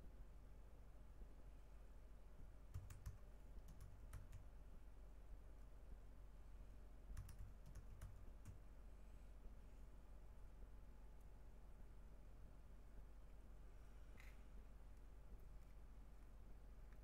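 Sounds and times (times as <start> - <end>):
low steady hum: 0.0 - 17.0
computer keyboard keystrokes: 2.7 - 4.5, 7.2 - 8.6.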